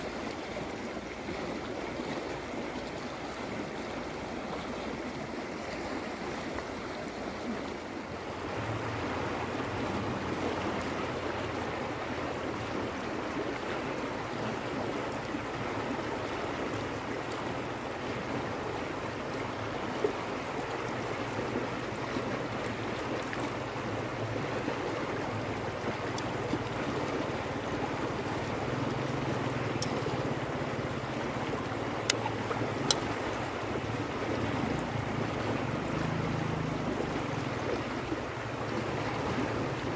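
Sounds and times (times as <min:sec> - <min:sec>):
river water rushing over rocks: 0:00.0 - 0:39.9
faint clicks: 0:29.7 - 0:30.1, 0:32.0 - 0:33.1.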